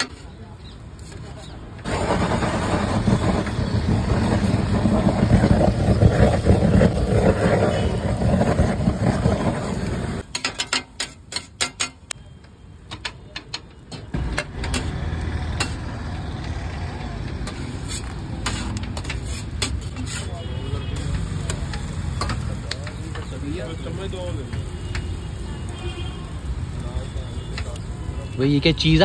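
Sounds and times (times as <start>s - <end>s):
blowtorch flame rushing: 1.8s - 10.2s
spatula tapping and scraping griddle: 10.2s - 12.2s, 12.9s - 15.9s, 17.4s - 25.2s.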